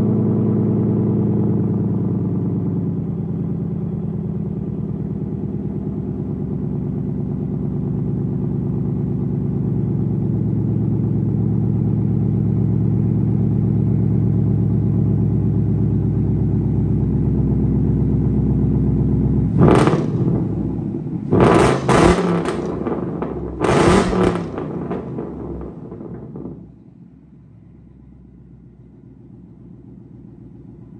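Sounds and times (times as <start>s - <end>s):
car engine idling: 0.0s - 30.9s
engine revving: 19.5s - 26.7s.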